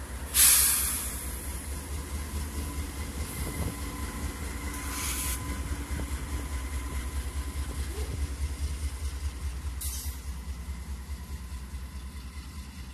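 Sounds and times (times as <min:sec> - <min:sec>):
locomotive diesel engine rumbling: 0:00.0 - 0:12.9
short hiss: 0:00.3 - 0:01.2, 0:04.8 - 0:05.4.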